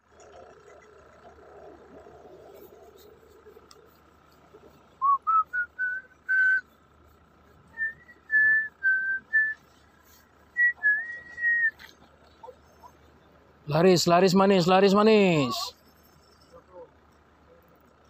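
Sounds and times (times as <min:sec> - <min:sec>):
person whistling a tune: 0:05.0 - 0:06.7, 0:07.7 - 0:09.6, 0:10.6 - 0:11.8.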